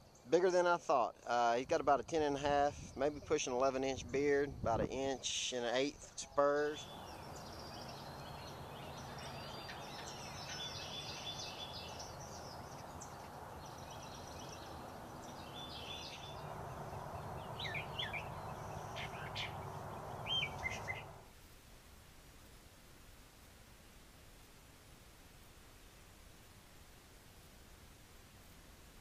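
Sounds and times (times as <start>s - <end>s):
songbirds chirping and trilling: 0.0s - 21.2s
low background noise: 0.0s - 29.0s.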